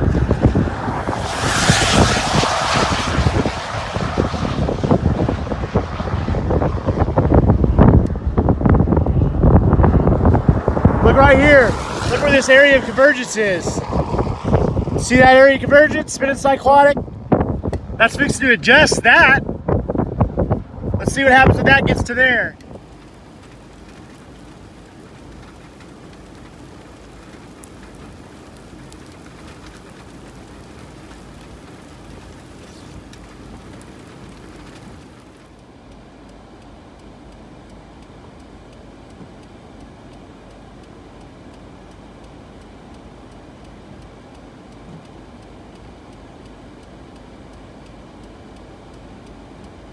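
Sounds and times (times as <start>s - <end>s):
low rumble: 0.0s - 35.7s
rain falling on a vehicle: 0.0s - 49.9s.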